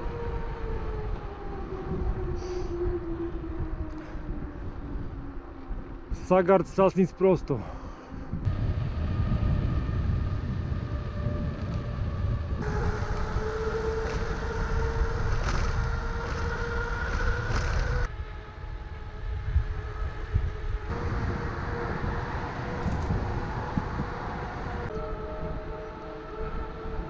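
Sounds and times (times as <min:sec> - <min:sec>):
wind rumbling on microphone: 0:00.0 - 0:27.0
steady humming tone: 0:08.0 - 0:27.0.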